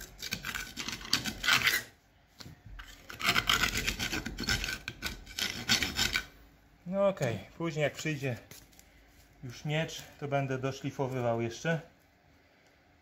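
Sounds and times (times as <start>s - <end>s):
hand saw rasping through fiberglass: 0.0s - 1.9s, 3.0s - 6.3s.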